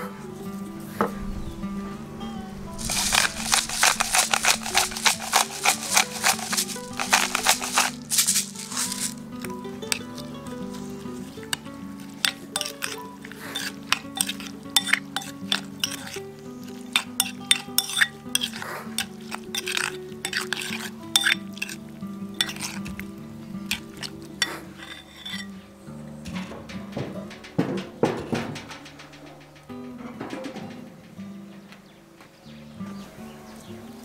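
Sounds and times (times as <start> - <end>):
background music: 0.0 - 34.0
metal spoon scraping ceramic bowl: 2.8 - 9.2, 9.9 - 10.9, 11.5 - 21.8, 22.4 - 23.0, 23.6 - 25.5.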